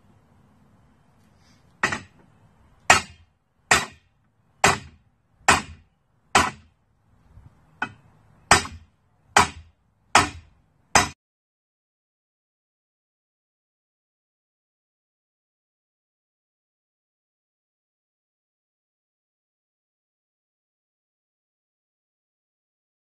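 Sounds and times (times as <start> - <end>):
hammer striking metal: 1.8 - 2.2, 2.9 - 5.8, 6.4 - 6.7, 7.8 - 11.2.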